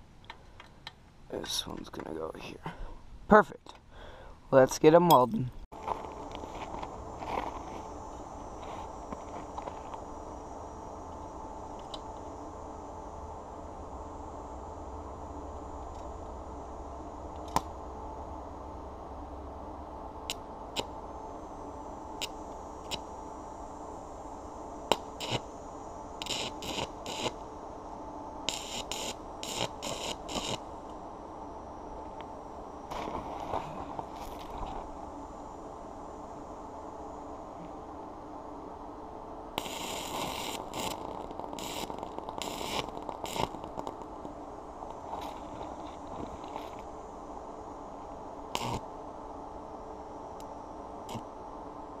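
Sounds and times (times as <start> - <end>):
welding arc crackling: 20.2 - 23.2, 24.8 - 27.6, 28.4 - 31.0, 39.6 - 46.9, 48.5 - 48.8.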